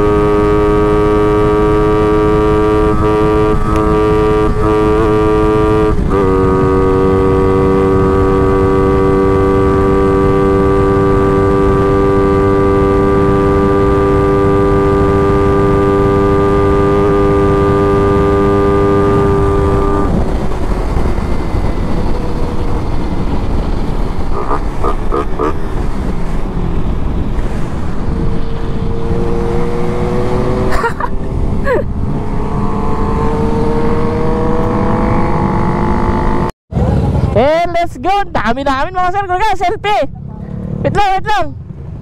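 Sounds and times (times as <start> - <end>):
motorcycle engine running: 0.0 - 26.3
wind rumble on microphone: 0.0 - 39.2.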